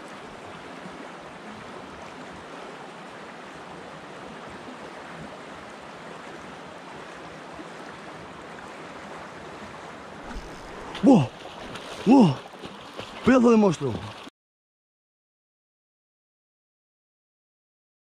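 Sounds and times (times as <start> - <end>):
river flowing over riffle: 0.0 - 14.3.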